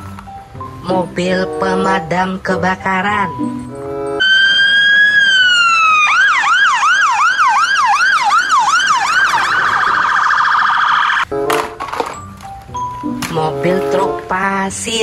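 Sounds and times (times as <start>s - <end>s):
fire engine siren: 4.2s - 11.3s.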